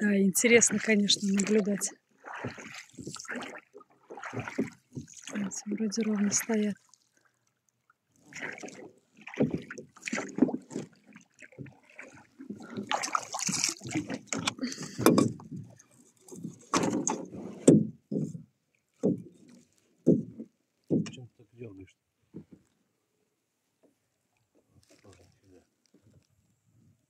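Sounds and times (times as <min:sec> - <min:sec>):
boat creaking: 0:00.0 - 0:06.7, 0:08.2 - 0:22.7
oars splashing in water: 0:00.0 - 0:21.2
oars knocking in oarlocks: 0:02.3 - 0:05.4, 0:08.5 - 0:21.2.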